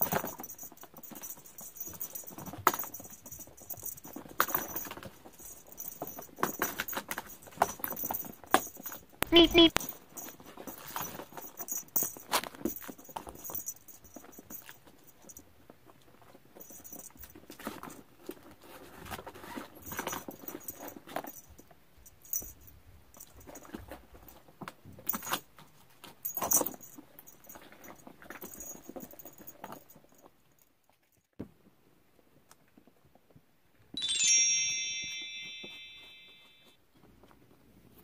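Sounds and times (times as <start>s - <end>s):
small bell jingling: 0.0s - 15.4s, 16.5s - 17.4s, 19.8s - 24.4s, 26.2s - 30.7s, 34.0s - 36.8s.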